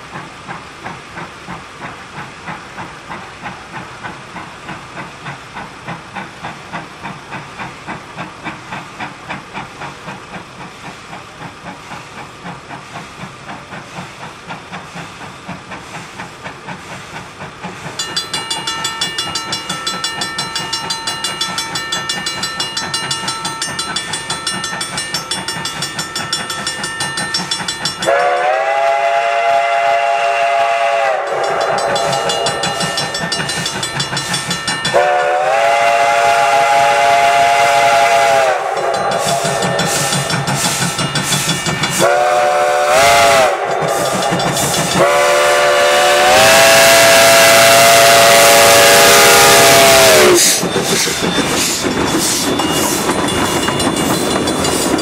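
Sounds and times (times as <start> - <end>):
steam locomotive chuffing: 0.0 - 55.0
steady high ringing tone: 18.0 - 28.4, 31.2 - 35.3
steam whistle blowing: 28.0 - 33.4, 34.9 - 41.0, 41.9 - 51.8.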